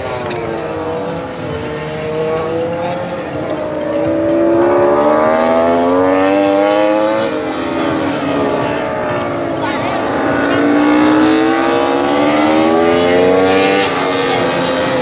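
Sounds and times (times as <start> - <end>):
racing motorcycle engines accelerating: 0.0 - 15.0.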